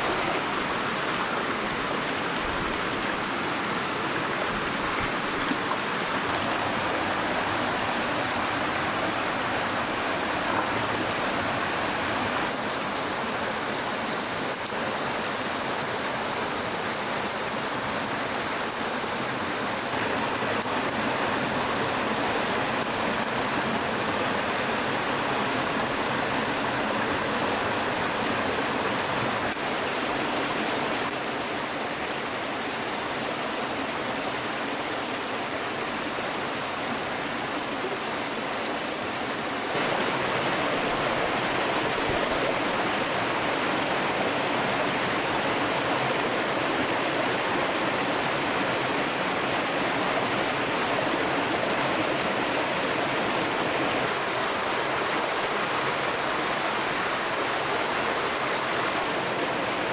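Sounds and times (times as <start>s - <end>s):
stream water flowing: 0.0s - 59.9s.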